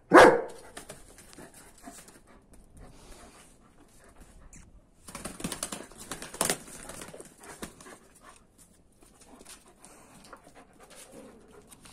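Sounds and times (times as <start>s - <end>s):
scrabbling on concrete: 0.6s - 11.9s
wing flapping: 5.0s - 8.0s.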